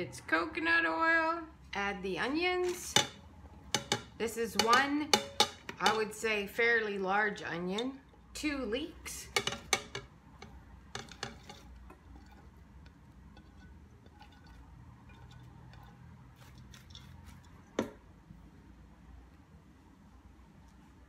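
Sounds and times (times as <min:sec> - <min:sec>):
spatula scraping a plate: 0:09.4 - 0:17.5.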